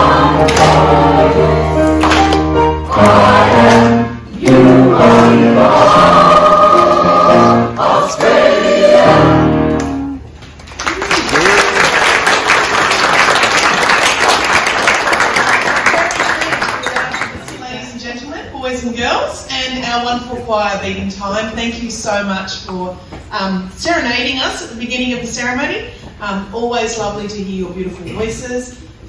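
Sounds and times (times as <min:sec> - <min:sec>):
choir singing: 0:00.0 - 0:02.0, 0:02.8 - 0:09.8
audience applauding: 0:10.5 - 0:17.6.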